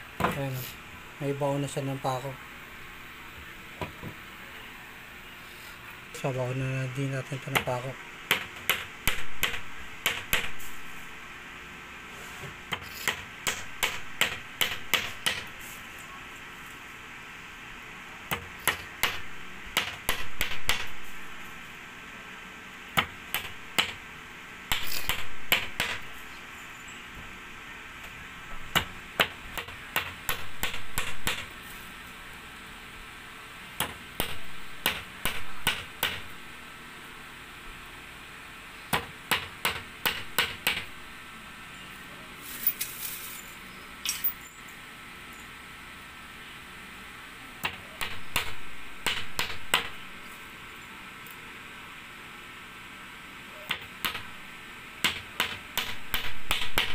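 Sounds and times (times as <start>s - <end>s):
hammer striking nails into wood: 8.3s - 10.6s, 12.7s - 15.5s, 18.3s - 21.0s, 23.0s - 24.0s, 24.7s - 26.1s, 28.7s - 31.5s, 33.8s - 36.4s, 38.9s - 41.0s, 47.6s - 50.0s, 53.7s - 54.3s, 55.0s - 56.9s.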